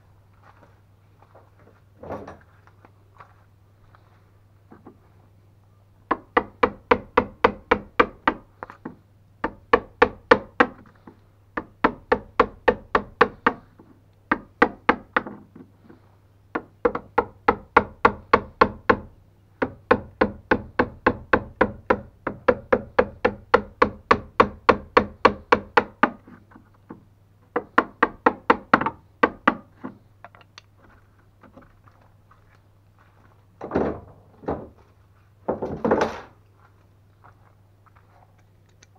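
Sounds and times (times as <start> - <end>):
wood chisel tapping: 6.1 - 10.8, 11.6 - 13.6, 14.3 - 26.2, 26.9 - 30.7.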